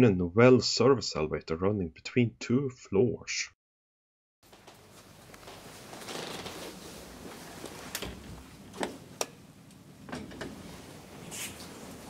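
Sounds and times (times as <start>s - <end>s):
elevator doors sliding: 10.0s - 12.0s.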